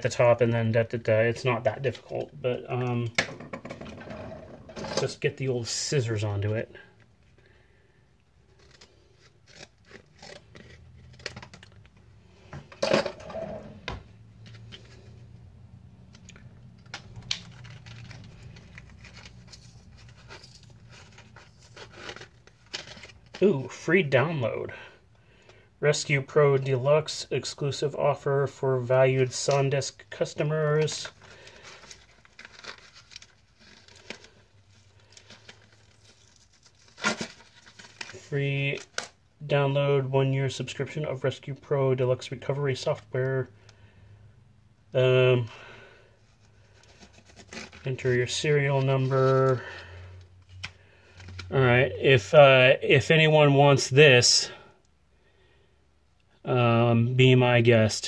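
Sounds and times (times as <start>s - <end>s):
plastic packaging handled: 8.4s - 23.8s, 29.2s - 39.3s, 46.2s - 51.7s.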